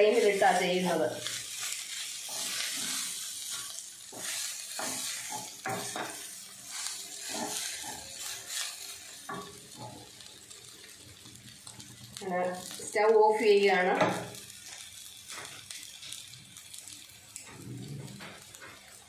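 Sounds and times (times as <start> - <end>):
spatula scraping pan: 0.0 - 10.0
oil sizzling: 0.0 - 19.0.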